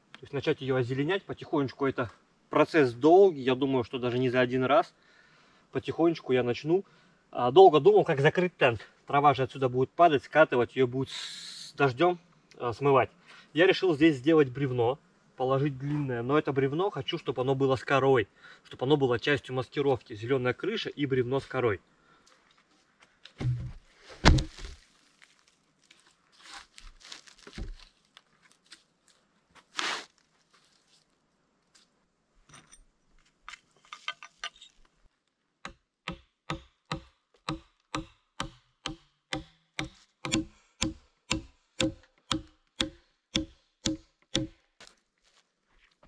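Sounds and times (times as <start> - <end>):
tool striking wood: 23.4 - 24.7, 35.7 - 44.6.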